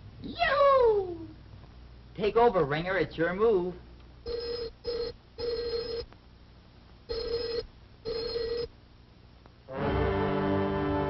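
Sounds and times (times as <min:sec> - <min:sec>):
telephone bell ringing: 0:04.3 - 0:06.1, 0:07.1 - 0:08.7.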